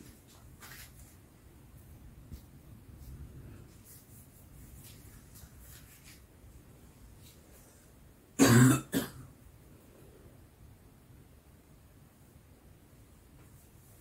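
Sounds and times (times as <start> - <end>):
person coughing: 8.4 - 9.3.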